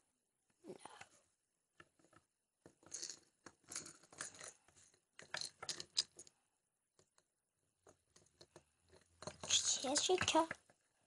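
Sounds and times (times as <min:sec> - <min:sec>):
plastic toy figures clicking: 0:05.2 - 0:06.4, 0:07.8 - 0:10.8.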